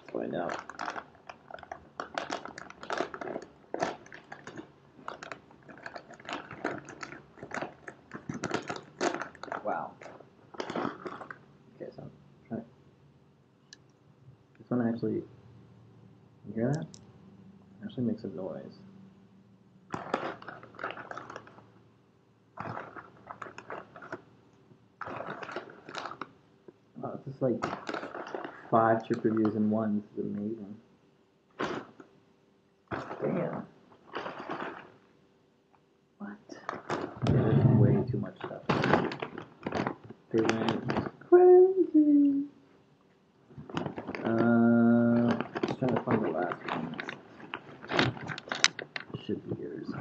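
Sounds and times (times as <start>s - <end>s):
plastic bag crinkling: 0.0s - 11.4s, 19.9s - 21.7s, 22.6s - 24.2s, 25.0s - 26.3s, 27.5s - 29.7s, 32.9s - 35.1s, 36.6s - 37.6s, 38.2s - 41.2s, 43.5s - 49.4s.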